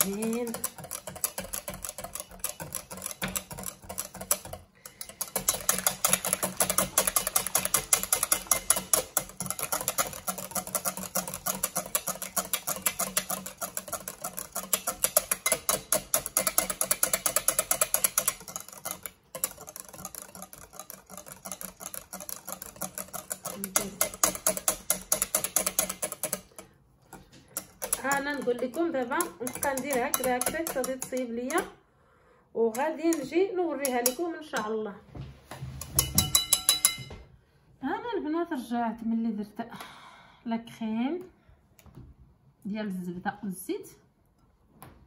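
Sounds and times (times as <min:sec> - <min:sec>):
whisk clicking on glass bowl: 0:00.0 - 0:31.8, 0:32.7 - 0:34.8, 0:35.8 - 0:37.1.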